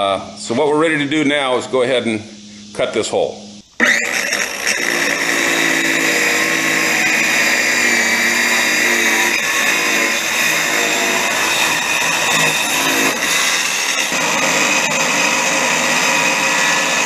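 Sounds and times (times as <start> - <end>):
circular saw cutting wood: 3.8 - 17.0.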